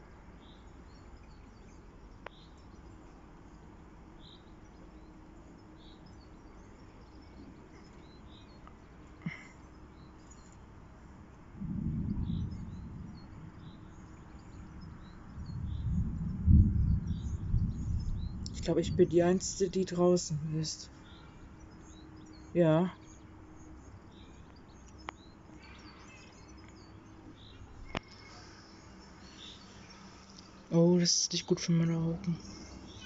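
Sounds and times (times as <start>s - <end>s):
small birds chirping: 0.0s - 33.0s
low rumble: 11.4s - 20.4s.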